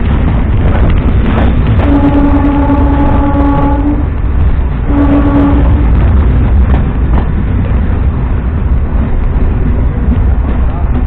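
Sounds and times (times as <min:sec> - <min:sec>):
electric train rumble: 0:00.0 - 0:11.0
train horn blasts: 0:01.8 - 0:04.2, 0:04.8 - 0:06.2.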